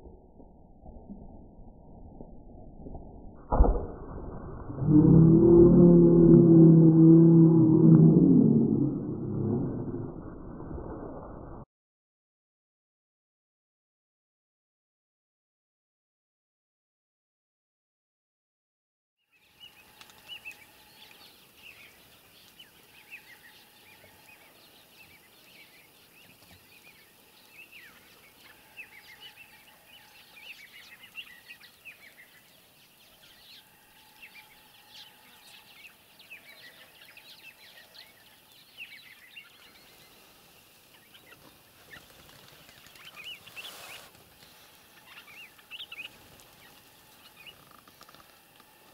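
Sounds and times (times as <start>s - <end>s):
birds chirping and calling: 19.6s - 48.2s.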